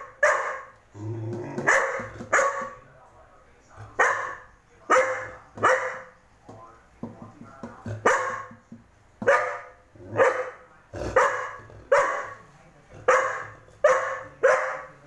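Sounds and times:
puppy barking: 0:00.0 - 0:00.8, 0:01.6 - 0:02.8, 0:03.9 - 0:06.2, 0:08.0 - 0:08.6, 0:09.2 - 0:12.4, 0:13.0 - 0:15.0.

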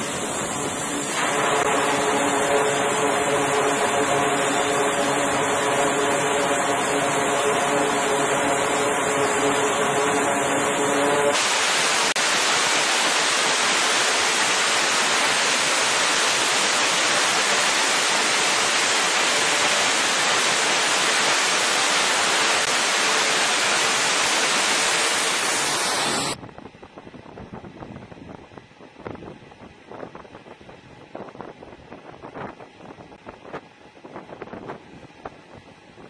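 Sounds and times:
aircraft engines roaring: 0:00.0 - 0:26.4.

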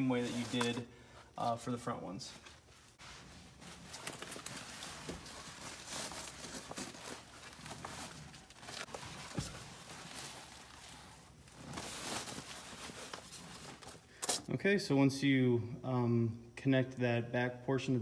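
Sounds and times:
fabric rustling and swishing: 0:02.5 - 0:14.1.

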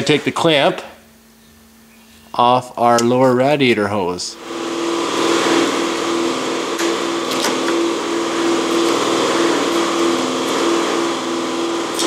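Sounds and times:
machine hum with pulsing tone: 0:04.0 - 0:12.0.

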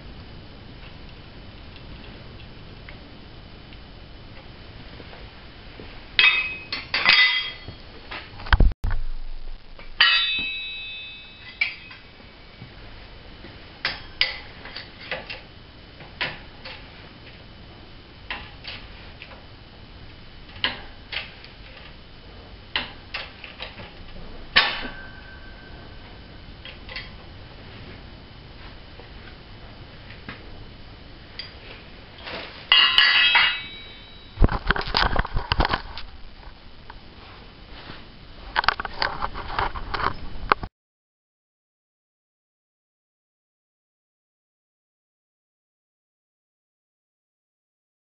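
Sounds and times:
metal parts clinking: 0:10.0 - 0:12.1, 0:32.7 - 0:35.8
dense metal clatter: 0:32.7 - 0:36.0.

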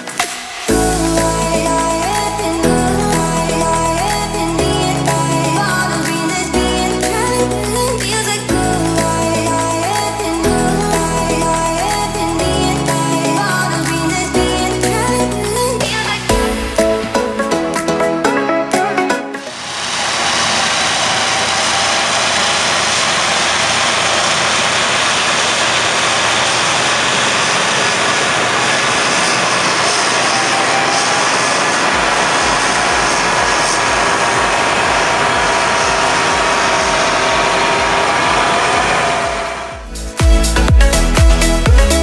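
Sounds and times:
mowing machinery running: 0:19.5 - 0:39.9
tractor engine under load: 0:19.6 - 0:39.9
low rumble: 0:19.6 - 0:41.8.

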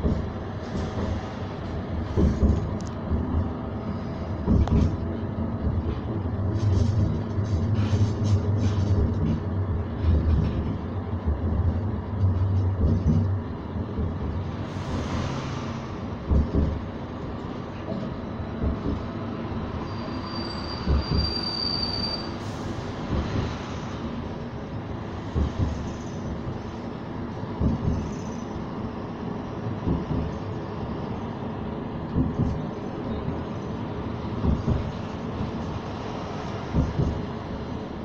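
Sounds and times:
tram motor hum: 0:00.0 - 0:21.4, 0:22.3 - 0:38.0
tram rumbling with dull thumps: 0:00.0 - 0:38.0
high wheel squeal: 0:19.7 - 0:22.8.

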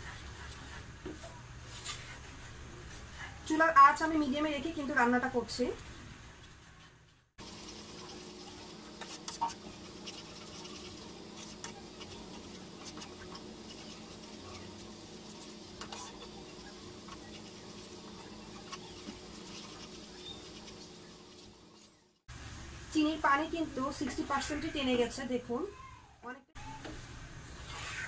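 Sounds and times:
wooden spatula scraping pan: 0:07.4 - 0:22.1.

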